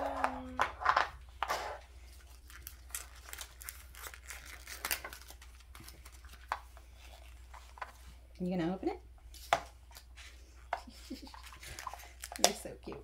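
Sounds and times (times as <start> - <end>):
paper wrapper crumpling: 2.0 - 7.8, 11.2 - 12.6.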